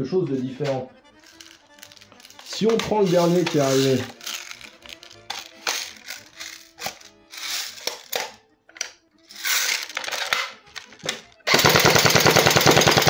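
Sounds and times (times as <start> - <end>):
gun handling clicks and knocks: 0.6 - 7.1, 7.8 - 9.0, 9.9 - 11.4
full-auto gun burst: 11.5 - 13.0.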